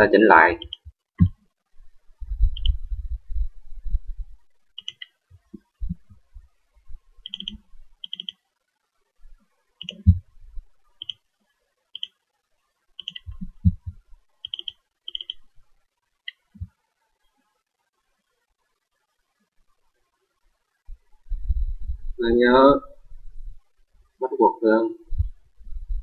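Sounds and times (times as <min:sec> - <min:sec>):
computer mouse clicking: 0:00.6 - 0:01.4, 0:02.5 - 0:02.8, 0:04.8 - 0:06.0, 0:07.2 - 0:08.4, 0:09.8 - 0:10.2, 0:11.0 - 0:11.2, 0:12.0 - 0:12.2, 0:13.0 - 0:15.5, 0:16.3 - 0:16.7
low thumps: 0:02.2 - 0:04.4, 0:10.0 - 0:10.7.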